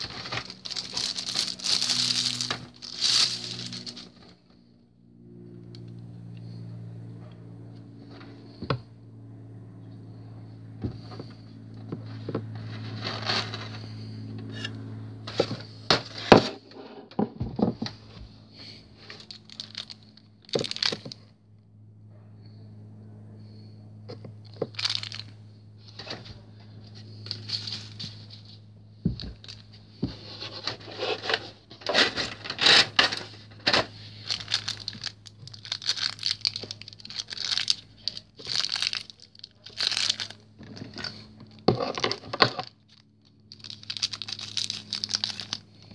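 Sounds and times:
plastic tray rustling and crinkling: 0.0 - 4.3, 19.1 - 21.2, 29.1 - 42.7
steady low hum: 0.0 - 45.9.

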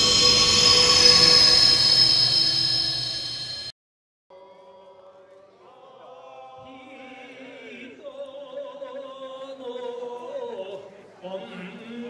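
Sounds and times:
men chanting: 5.7 - 12.0.

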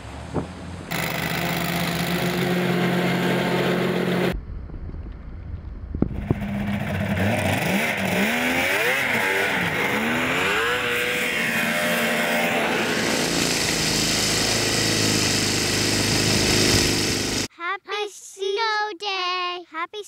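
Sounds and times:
snowblower engine running: 0.9 - 4.4, 6.3 - 17.5
snowmobile engine revving: 0.9 - 4.4, 6.2 - 17.5.

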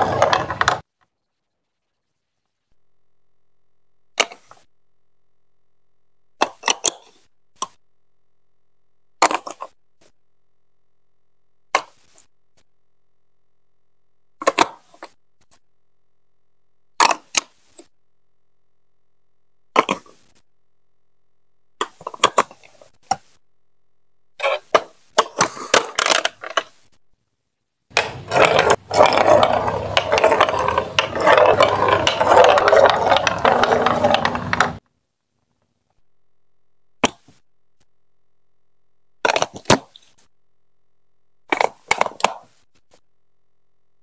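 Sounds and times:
marble rolling on plastic track: 0.0 - 0.8, 9.2 - 9.8, 14.4 - 15.2, 21.8 - 23.2, 24.4 - 26.8, 27.9 - 34.8, 41.5 - 42.5
plastic blocks clicking into place: 4.2 - 4.6, 9.2 - 9.7, 11.7 - 12.3, 14.4 - 15.2, 17.0 - 17.9, 19.8 - 20.2, 21.8 - 23.3, 24.6 - 26.8, 37.0 - 37.4, 39.2 - 40.2, 41.5 - 42.5.

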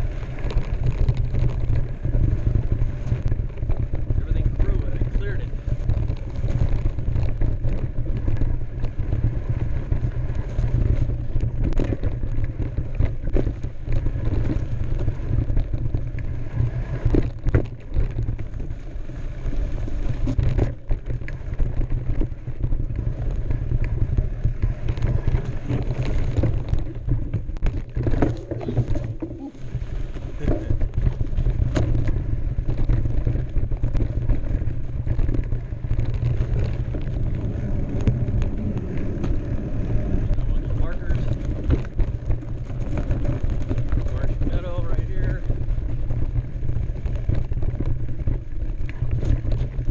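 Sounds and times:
bike rattling and knocking: 0.0 - 49.9
tyres crunching over dirt: 0.0 - 49.9
wind rumble on microphone: 0.0 - 49.9.

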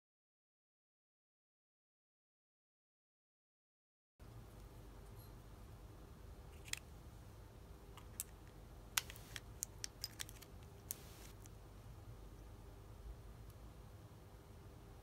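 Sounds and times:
faint hum: 4.2 - 15.0
small clicks and crinkles: 8.0 - 11.6.

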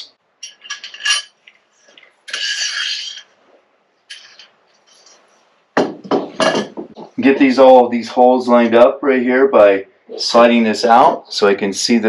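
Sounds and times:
metal scrape: 0.4 - 3.5, 4.1 - 5.4.

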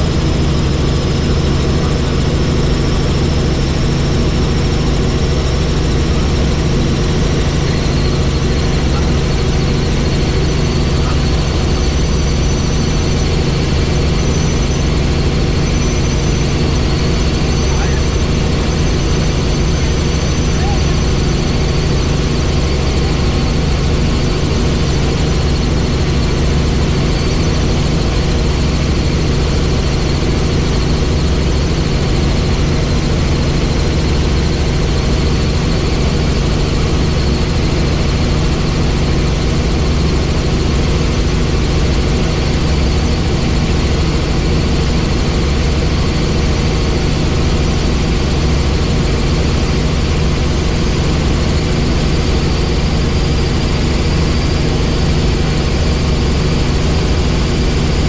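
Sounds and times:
faint high whine: 0.0 - 31.3
helicopter engine and rotor noise: 0.0 - 58.0.

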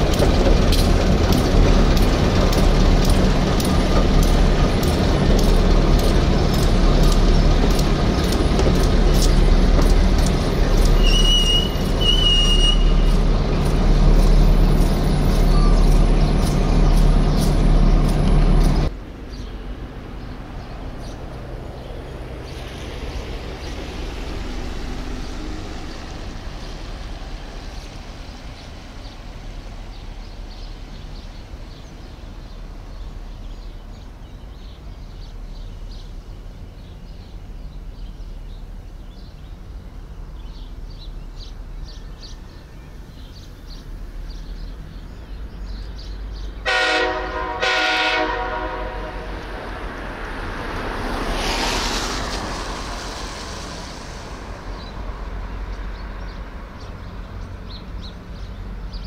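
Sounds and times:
train clanking: 0.0 - 19.0
train engine drone: 0.0 - 59.0.

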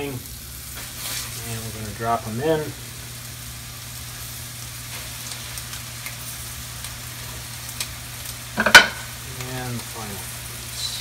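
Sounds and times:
fish sizzling in frying pan: 0.0 - 11.0.

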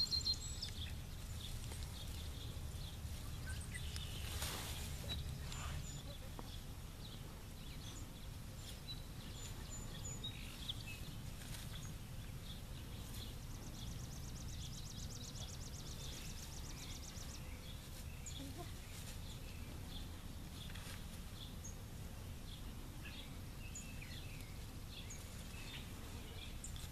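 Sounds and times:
faint bird chirps: 0.0 - 8.1.

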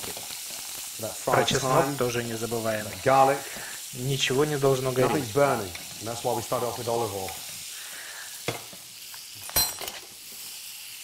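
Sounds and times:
steaks sizzling in a pan: 0.0 - 11.0
metal spoon clinking on pan: 9.4 - 10.0.

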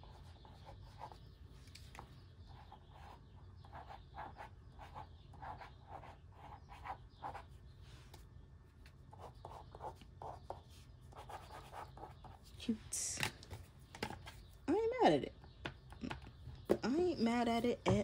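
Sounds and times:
pencil scratching on paper: 0.0 - 1.2, 2.5 - 7.5, 9.1 - 12.5.

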